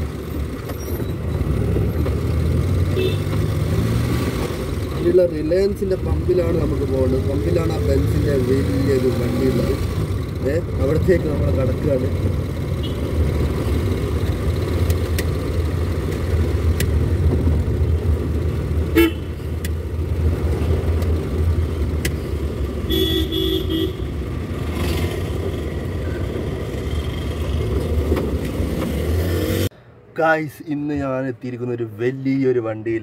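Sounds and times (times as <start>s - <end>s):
engine and road noise: 0.0s - 33.0s
vehicle horn toots: 2.9s - 3.4s, 12.8s - 13.1s, 18.9s - 19.3s, 22.9s - 24.1s.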